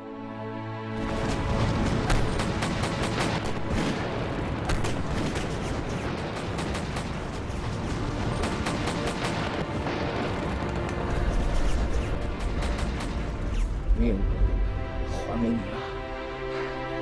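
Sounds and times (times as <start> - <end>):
rifle and pistol gunfire: 1.9 - 10.6.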